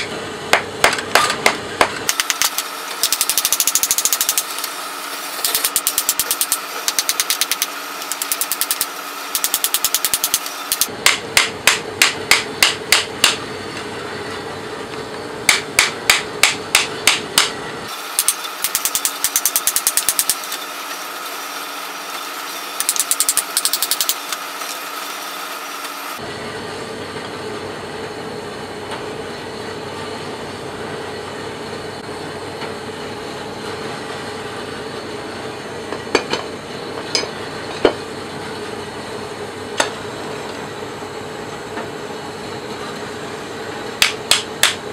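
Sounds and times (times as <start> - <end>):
hammer striking metal: 5.4 - 13.4, 15.5 - 17.6, 44.0 - 44.8.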